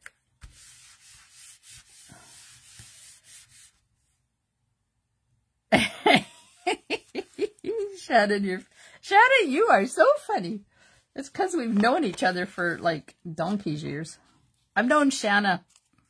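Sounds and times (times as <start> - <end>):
hand rubbing on cardstock: 0.4 - 3.9
woman laughing: 5.7 - 8.3.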